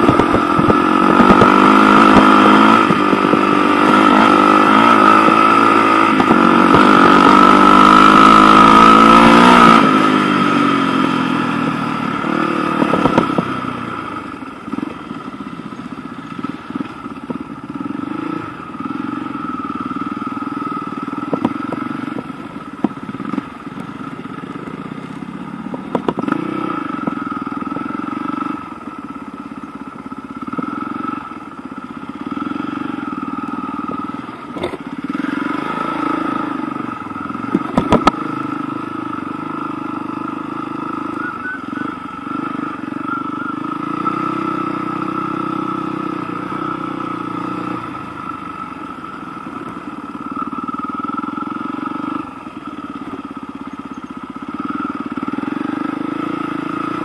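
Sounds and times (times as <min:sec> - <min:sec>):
motorcycle engine revving: 0:00.0 - 0:57.0
sharp clicks and knocks: 0:37.5 - 0:38.2.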